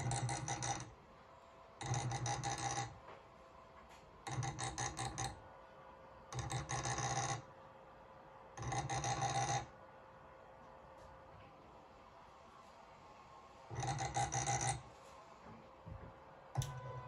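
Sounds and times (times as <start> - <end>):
stepper motor buzzing whine: 16.6 - 17.0.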